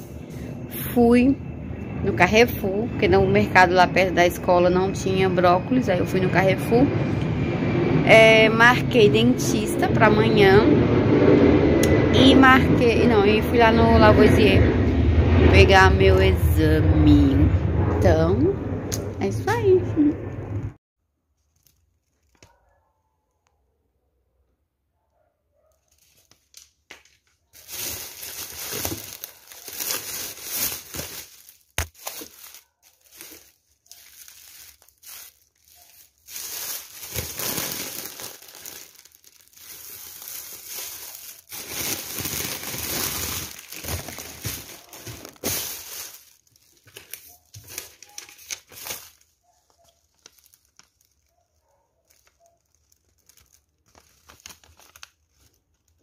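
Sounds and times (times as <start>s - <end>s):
plastic bag crinkling: 21.3s - 22.6s, 25.8s - 56.0s
faint handling sounds: 25.7s - 56.0s.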